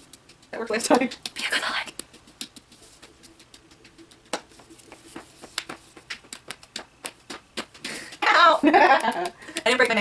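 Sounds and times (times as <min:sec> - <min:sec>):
tapping on plastic egg shell: 0:00.0 - 0:09.8.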